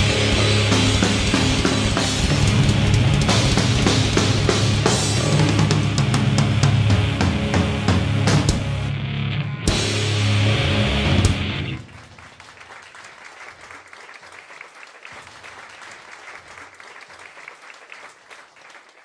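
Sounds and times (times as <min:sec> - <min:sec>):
metal band final chord: 0:00.0 - 0:11.8
audience clapping: 0:11.4 - 0:19.0.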